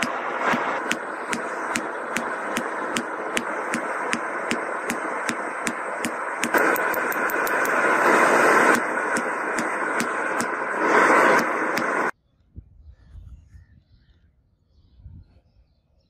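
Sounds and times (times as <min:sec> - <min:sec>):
hammer striking hot steel: 0:00.0 - 0:12.1
loud rushing noise: 0:00.0 - 0:12.1.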